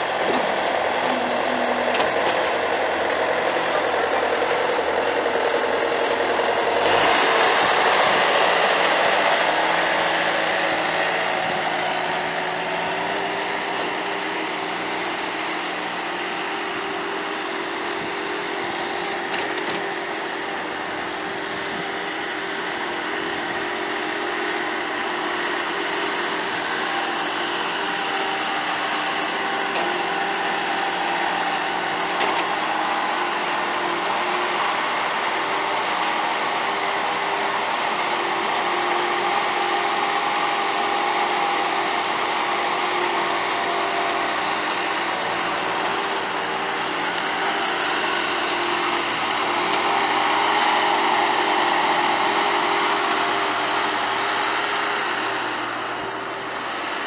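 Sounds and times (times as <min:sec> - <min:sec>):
diesel engine running: 0:00.0 - 0:57.0.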